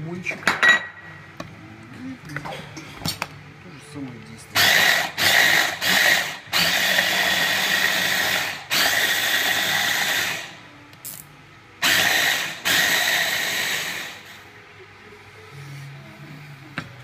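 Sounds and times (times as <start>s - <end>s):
hand blender chopping: 4.6s - 10.5s.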